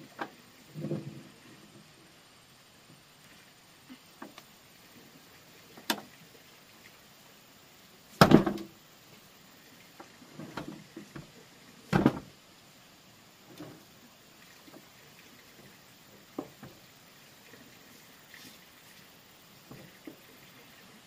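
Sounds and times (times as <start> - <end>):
knocks and thuds: 8.2 - 8.7, 11.9 - 12.3.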